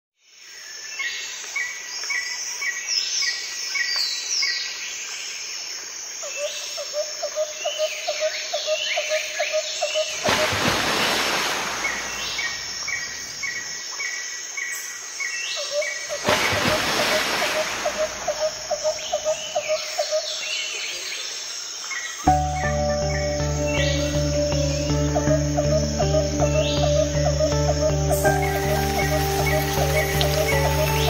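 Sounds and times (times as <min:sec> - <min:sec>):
low bird notes: 0:22.3 - 0:31.0.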